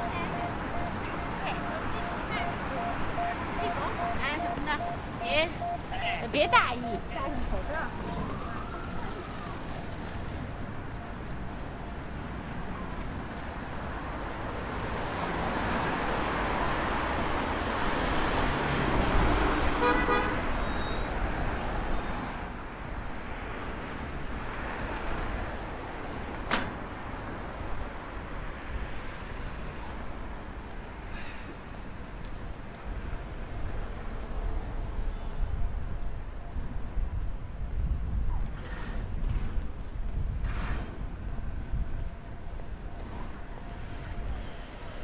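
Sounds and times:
passing vehicle: 0.0s - 34.5s
car horn toot: 19.8s - 21.0s.

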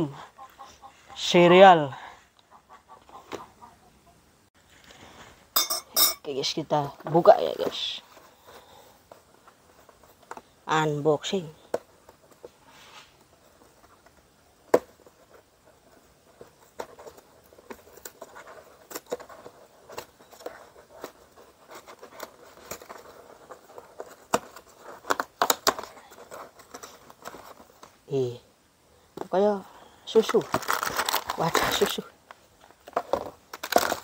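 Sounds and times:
cardboard box being torn open: 30.4s - 31.9s.

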